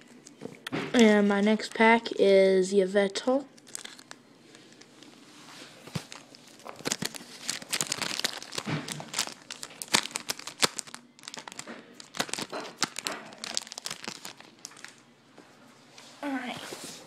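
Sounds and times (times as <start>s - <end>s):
foil wrapper ripped and crinkled: 3.6s - 4.2s, 6.0s - 15.0s.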